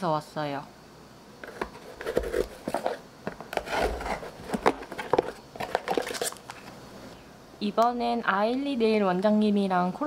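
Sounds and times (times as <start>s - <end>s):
cardboard rubbing and rustling: 1.5s - 6.4s.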